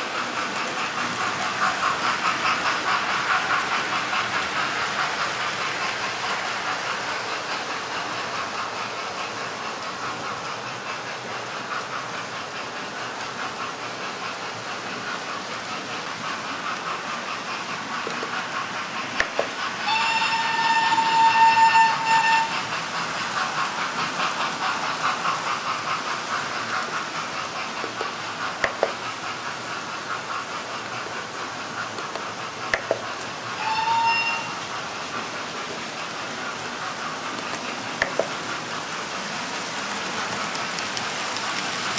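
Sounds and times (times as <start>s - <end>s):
model trains whirring on track: 0.0s - 41.9s
train whistle: 19.8s - 22.8s, 33.6s - 34.7s.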